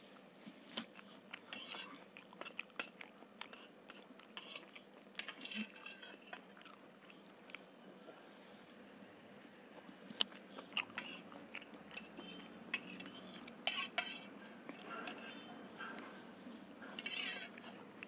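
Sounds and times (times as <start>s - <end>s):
fork scraping and clinking on plate: 1.4s - 6.4s, 10.9s - 11.3s, 11.9s - 16.2s, 16.8s - 17.8s.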